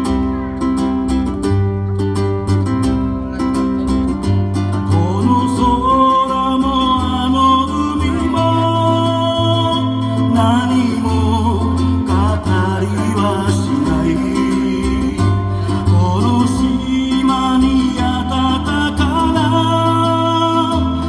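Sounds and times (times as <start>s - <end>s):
ukulele music: 0.0s - 21.0s
person singing: 4.7s - 21.0s.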